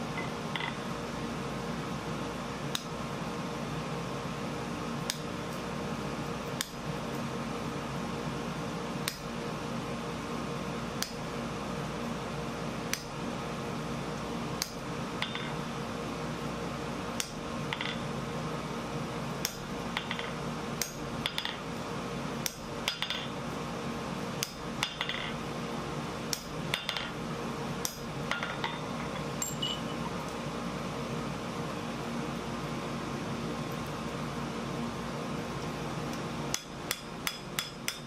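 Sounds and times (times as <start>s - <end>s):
steady hum: 0.0s - 38.0s.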